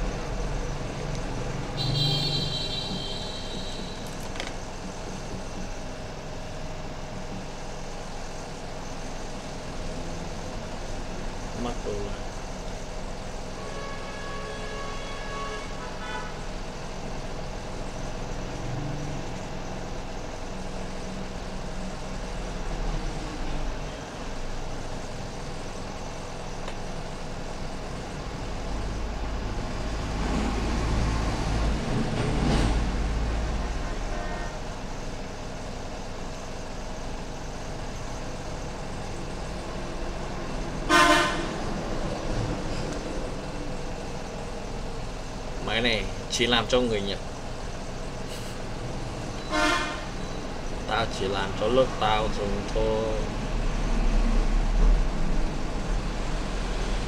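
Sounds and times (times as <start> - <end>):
short horn toot: 1.8 - 4.0
car horn: 1.8 - 4.1, 13.6 - 16.5, 33.9 - 34.7, 40.9 - 41.6, 49.4 - 50.2.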